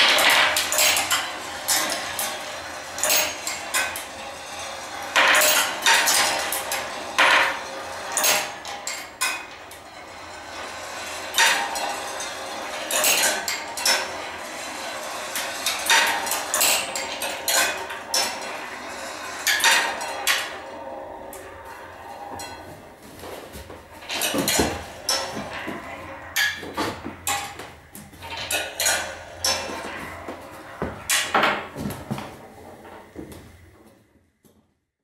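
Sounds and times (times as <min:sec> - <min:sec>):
marbles clinking on metal: 0:00.0 - 0:22.6
marbles rolling on wire rails: 0:00.0 - 0:33.0.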